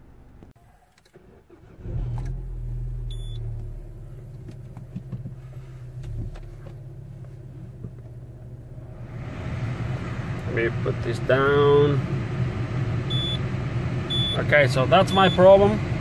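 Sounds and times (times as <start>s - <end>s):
car engine starting and idling: 0.0s - 16.0s.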